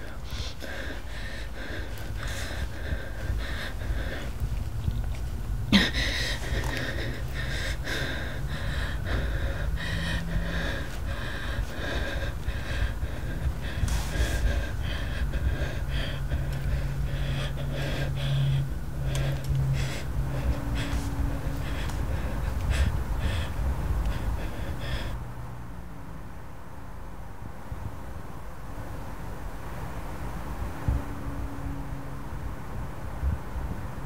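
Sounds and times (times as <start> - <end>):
woman breathing hard and gasping: 0.0 - 25.2
low steady rumble: 0.0 - 34.0.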